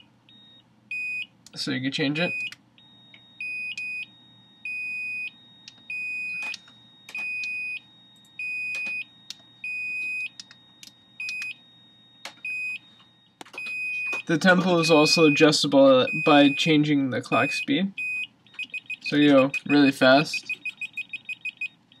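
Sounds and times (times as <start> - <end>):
high-pitched electronic beeps: 17.3 - 22.0.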